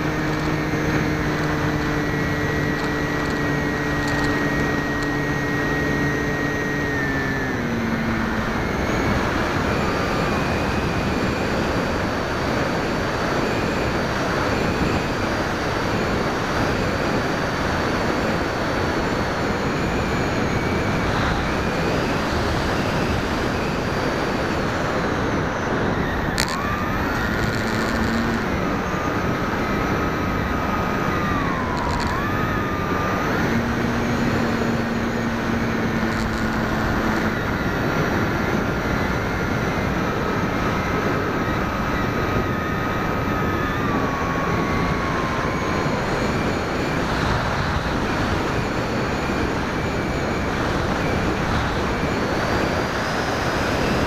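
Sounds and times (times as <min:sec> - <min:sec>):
electric motor whine: 0:00.0 - 0:54.0
wind rushing over camera: 0:00.0 - 0:54.0
click: 0:04.0 - 0:04.4, 0:26.4 - 0:28.3.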